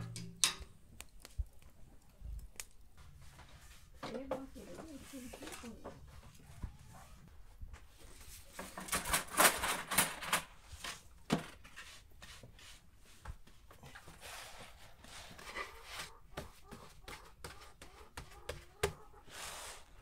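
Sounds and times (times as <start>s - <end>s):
hands patting dough on board: 16.2s - 19.0s.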